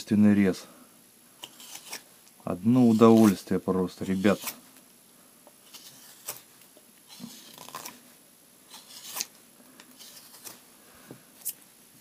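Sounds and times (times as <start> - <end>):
knife scraping wood: 1.4 - 2.1, 2.7 - 4.6, 5.6 - 8.0, 8.7 - 10.6.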